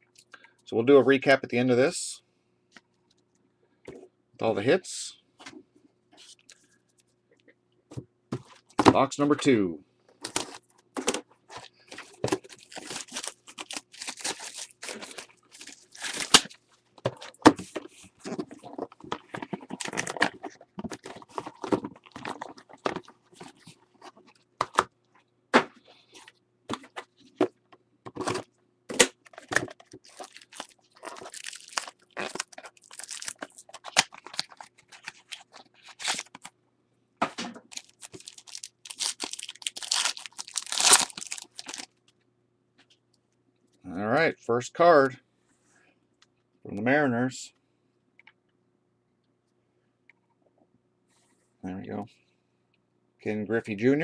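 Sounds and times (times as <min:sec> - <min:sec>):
card packs being handled: 0:10.2 - 0:24.9, 0:28.1 - 0:36.5, 0:37.6 - 0:41.9
plastic wrap crinkling and tearing: 0:11.8 - 0:16.7, 0:29.3 - 0:36.5, 0:37.6 - 0:42.0.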